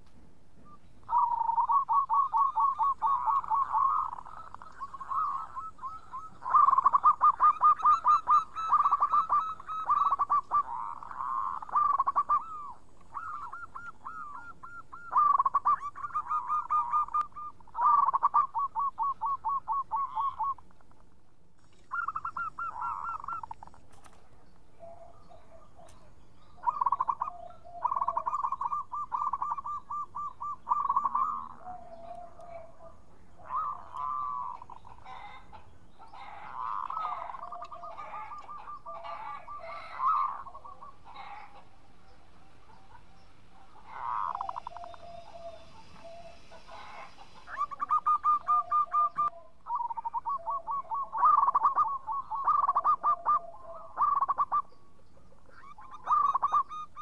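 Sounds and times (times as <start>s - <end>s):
dove cooing: 0.6s - 20.9s, 21.7s - 57.0s.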